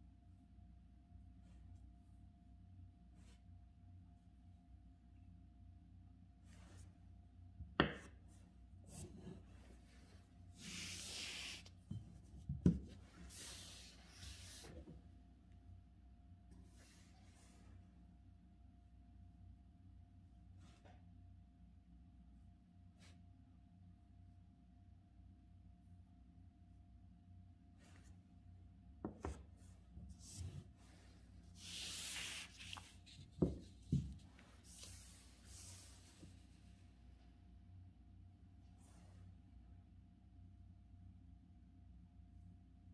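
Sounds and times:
paper rustling across desk: 30.1 - 36.4.

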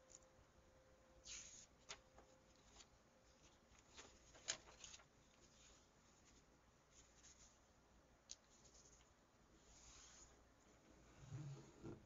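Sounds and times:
paper crackle: 1.3 - 6.4
paper rustling and crinkling: 1.3 - 7.6.

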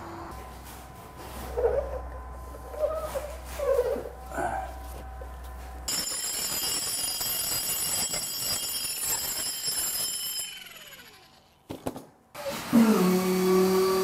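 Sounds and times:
power grinder whining on brick: 5.9 - 11.5, 12.4 - 14.0.

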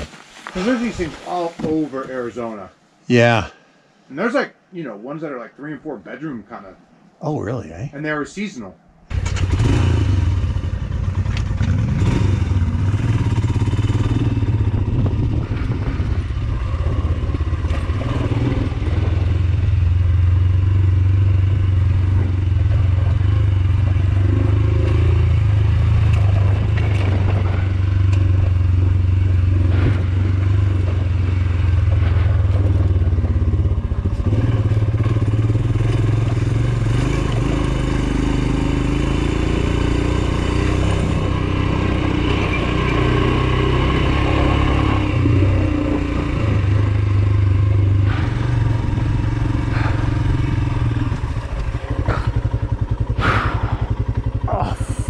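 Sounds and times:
motorcycle engine running: 9.1 - 55.0
motorcycle clattering over bumps: 10.4 - 39.3, 40.1 - 54.5.

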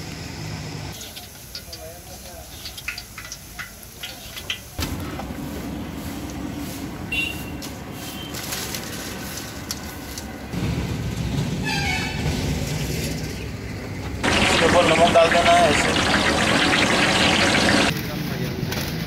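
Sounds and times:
hot oil crackling: 0.9 - 7.3, 14.1 - 18.0
oil popping: 14.2 - 17.9.

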